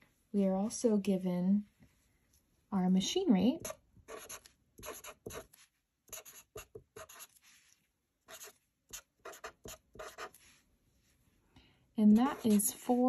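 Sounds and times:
marker writing on paper: 3.6 - 7.4, 8.3 - 10.4.

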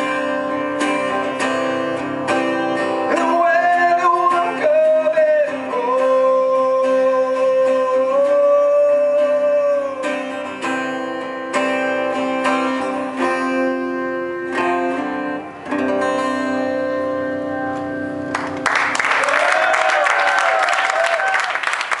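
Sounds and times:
acoustic guitar strumming: 0.0 - 18.6
person singing: 3.1 - 10.4
audience applause and cheering: 18.3 - 22.0.

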